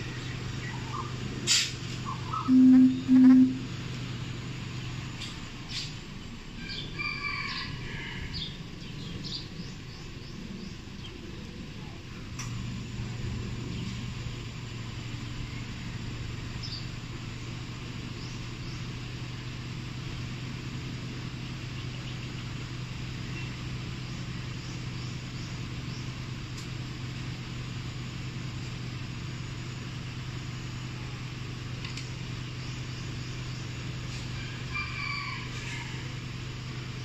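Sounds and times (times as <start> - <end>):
car engine idling: 0.0 - 34.8, 36.0 - 37.0
faint bird chirps: 2.0 - 3.7.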